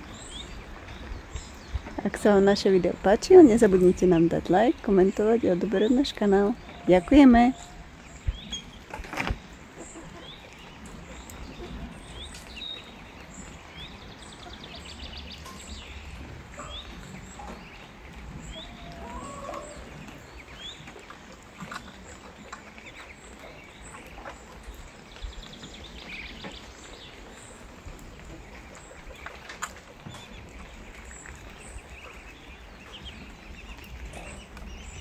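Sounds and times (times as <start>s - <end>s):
ducks chirping and peeping: 0.0s - 35.0s.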